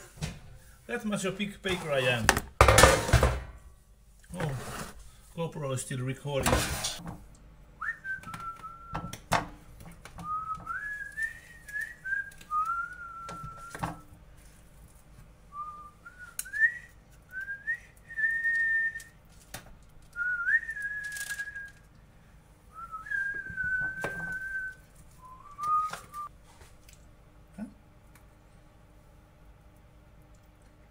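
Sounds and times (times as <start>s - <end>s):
person whistling a slow tune: 7.8s - 9.2s, 10.2s - 13.8s, 15.6s - 19.1s, 20.2s - 21.8s, 22.8s - 26.3s.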